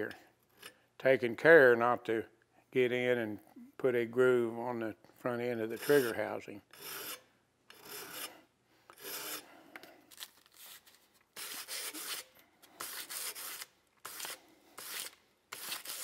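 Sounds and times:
file scraping metal: 5.6 - 9.5, 11.4 - 16.0.

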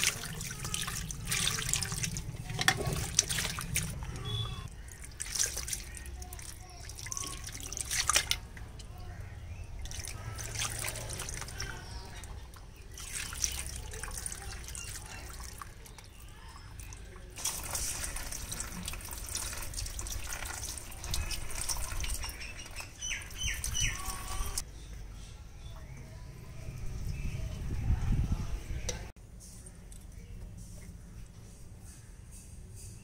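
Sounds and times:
wet squelching and dripping: 0.0 - 24.6.

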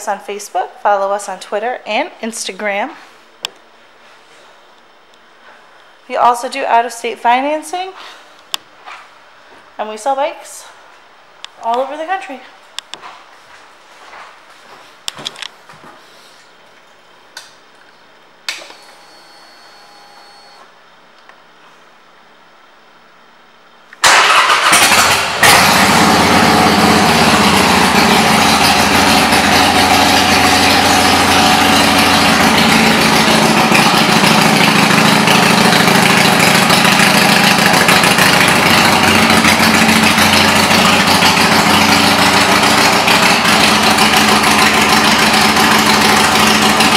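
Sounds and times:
motorcycle engine idling: 25.6 - 46.9.

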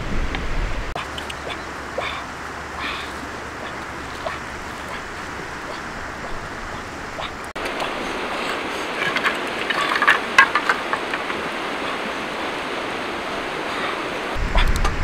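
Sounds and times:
steady rushing background: 0.0 - 15.0
bamboo stalks clattering together: 8.9 - 11.4.

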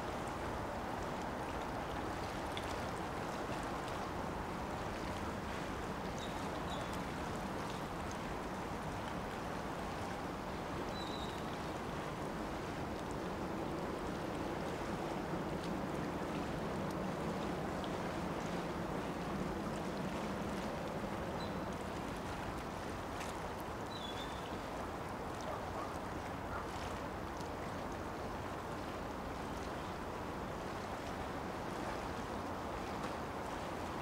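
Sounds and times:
wind: 0.0 - 34.0.

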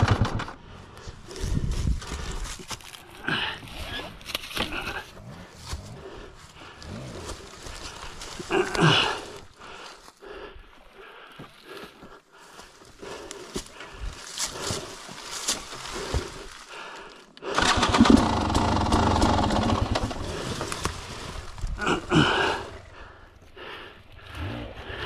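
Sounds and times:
dirt bike engine running rough: 0.0 - 0.7, 17.6 - 23.0
rustling in dry leaves: 1.4 - 10.2, 13.4 - 16.7, 17.6 - 22.9.

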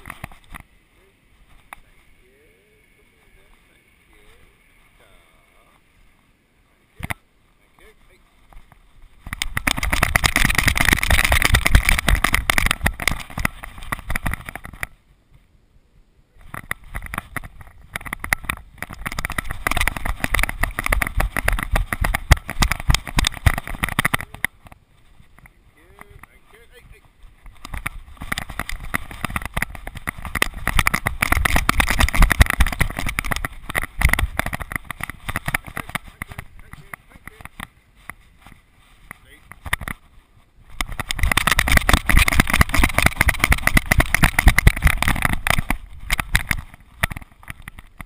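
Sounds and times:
camera knocking and rumbling: 0.0 - 0.7, 6.9 - 7.2, 7.8 - 15.0, 16.4 - 48.0
wind buffeting: 16.4 - 48.0.

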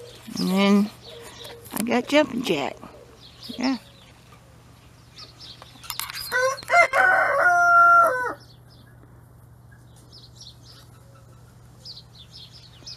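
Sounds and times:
rooster crowing: 6.3 - 8.5.

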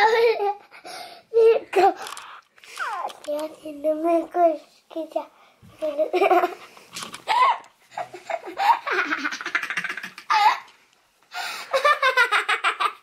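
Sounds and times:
young boy laughing: 5.8 - 6.6, 7.3 - 10.7, 11.6 - 13.0.

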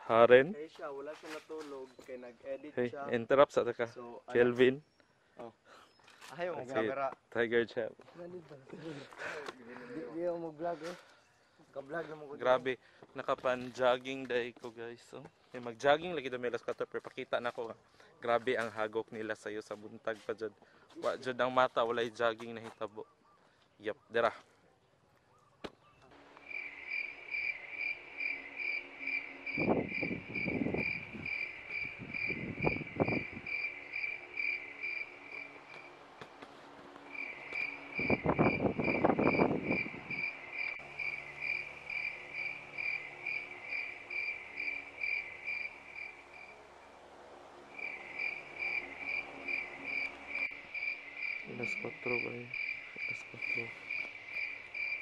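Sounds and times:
cricket chirping: 26.2 - 36.1, 37.0 - 55.0.

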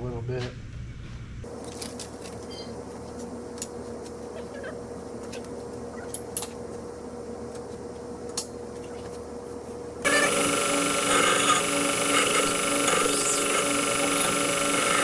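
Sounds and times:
belt grinder whining: 10.0 - 15.0.

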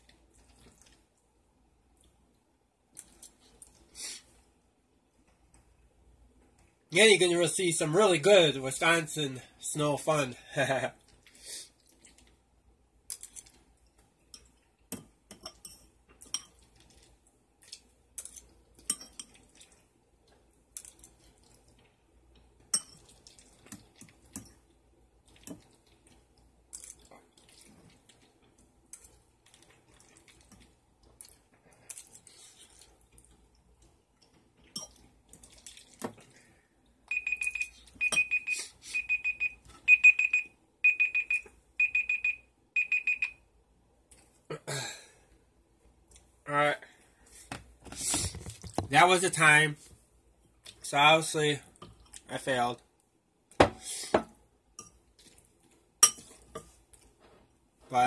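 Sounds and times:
timer alarm beeping: 37.1 - 43.4.

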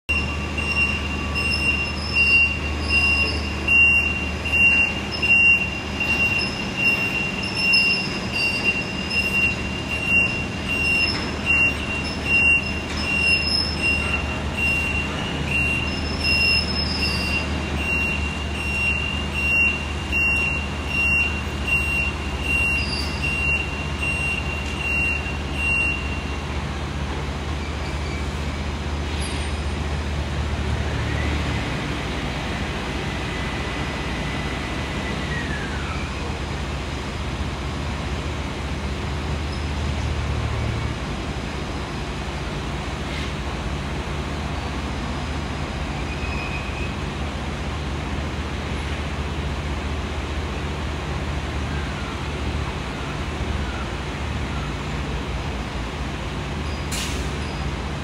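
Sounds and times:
high warning beeper: 0.1 - 26.4
crane engine drone: 0.1 - 58.0.

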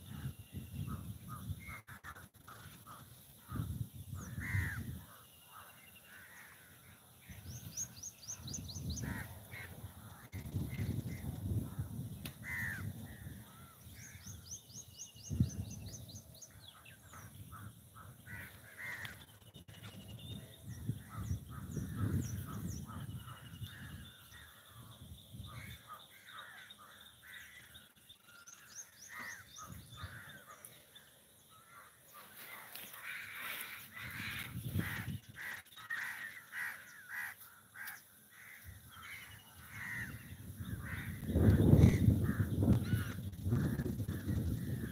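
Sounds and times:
crows cawing: 1.6 - 7.0, 9.0 - 10.3, 12.3 - 14.4, 16.6 - 19.3, 25.5 - 27.9, 28.5 - 30.8, 31.5 - 44.9.

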